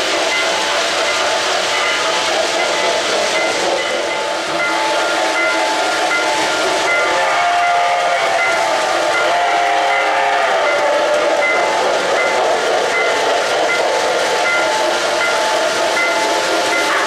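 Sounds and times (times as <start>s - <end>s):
model train rolling on track: 0.0s - 17.0s
steam whistle: 6.9s - 11.8s.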